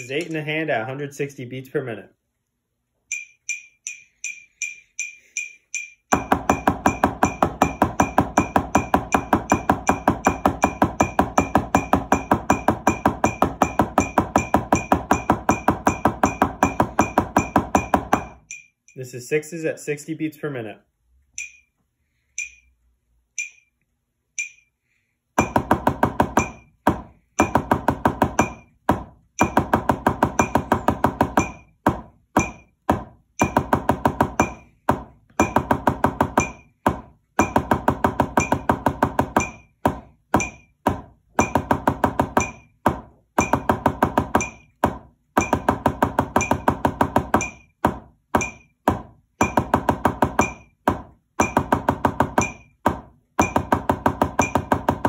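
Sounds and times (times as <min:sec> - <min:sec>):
drumsticks on practice pad: 0:03.0 - 0:19.0, 0:21.3 - 0:22.7, 0:23.3 - 0:24.8, 0:48.4 - 0:49.7.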